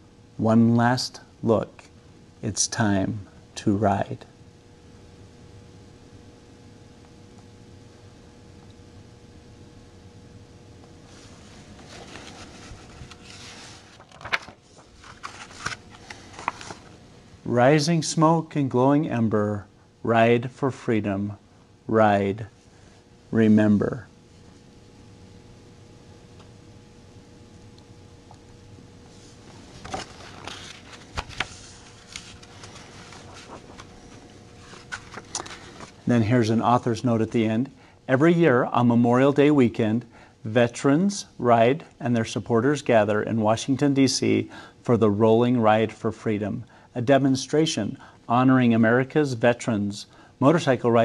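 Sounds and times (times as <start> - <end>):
rustling and scraping of book: 11.0 - 17.0, 29.1 - 36.1
book pages turning: 11.1 - 17.0, 29.2 - 36.1.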